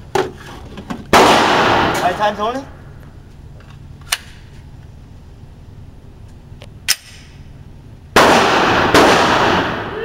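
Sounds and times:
gunshot crack: 1.1 - 2.2, 8.2 - 10.0
loud pistol shot ringing indoors: 1.2 - 2.1, 8.2 - 10.0.

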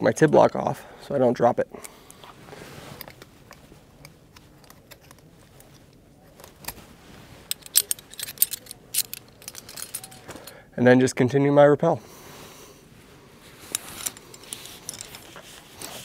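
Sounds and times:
faint rustling: 2.0 - 10.6, 12.3 - 16.0
metal climbing gear clinking: 2.9 - 6.8, 7.4 - 10.6, 13.6 - 16.0.

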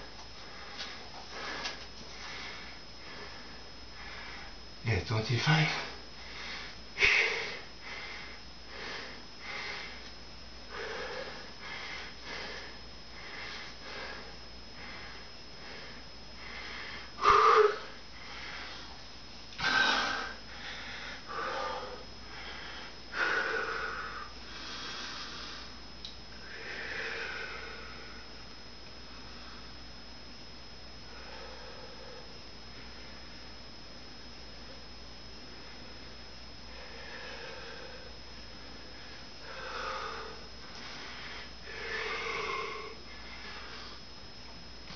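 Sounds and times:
man breathing hard: 0.4 - 4.6, 5.8 - 10.1, 10.7 - 19.0, 19.6 - 25.8, 26.4 - 28.4, 31.1 - 33.4, 36.7 - 44.1.

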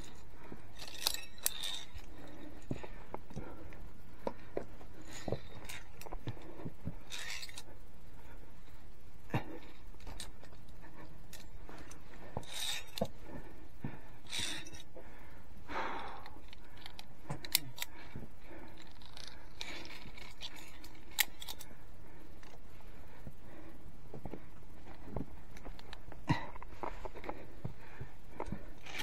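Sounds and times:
carabiners clinking on steel cable: 0.0 - 3.8, 4.8 - 7.8, 9.4 - 13.4, 14.2 - 15.0, 16.1 - 21.8, 28.4 - 29.0.

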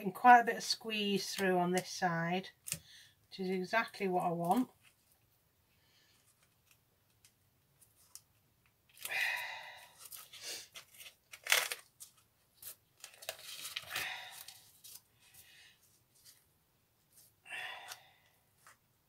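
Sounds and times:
gloved hands rustling paper: 9.9 - 16.5.

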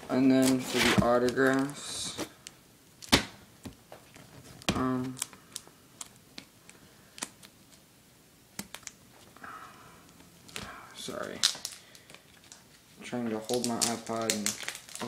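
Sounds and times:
plastic sleeve clicks and rustles: 13.4 - 15.0.

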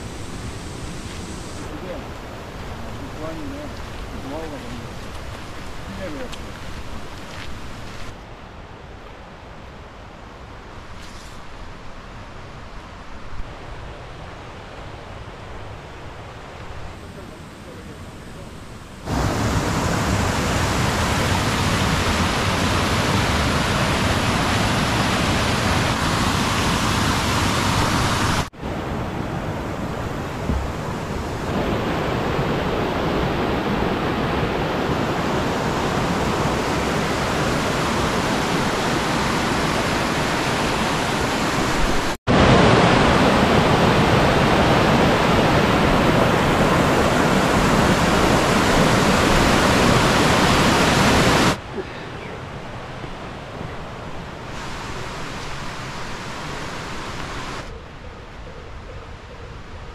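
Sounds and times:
stream rushing over boulders: 0.0 - 8.6, 10.4 - 57.7.

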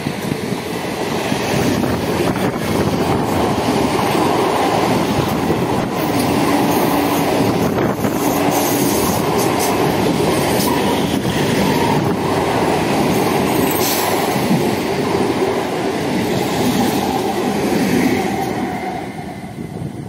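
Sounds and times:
train wheels rushing and rattling: 0.0 - 20.0.

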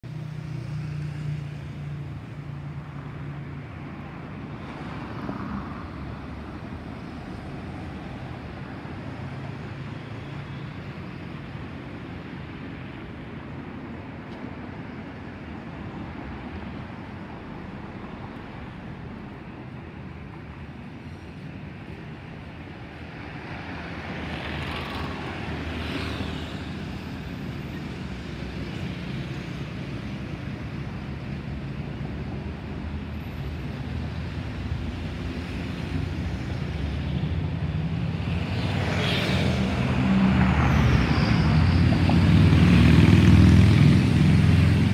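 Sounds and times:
jet engines rumbling overhead: 0.4 - 44.9.

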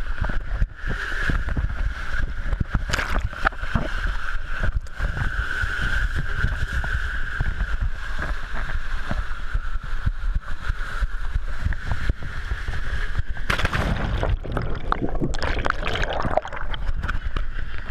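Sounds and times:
water gurgling and bubbling: 2.9 - 4.0, 13.5 - 17.9
water rushing down slide tube: 13.2 - 17.9
splash into pool: 13.5 - 17.0.

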